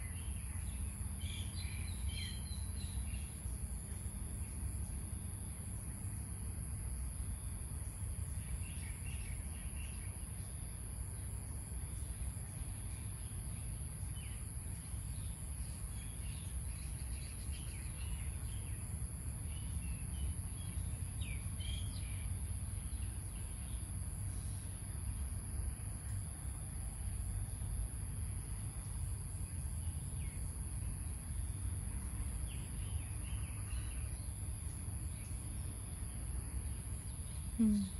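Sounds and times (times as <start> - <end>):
small birds chirping: 0.0 - 5.0, 11.9 - 24.8, 28.8 - 37.9
insects droning: 0.0 - 37.9
low steady rumble: 0.0 - 37.9.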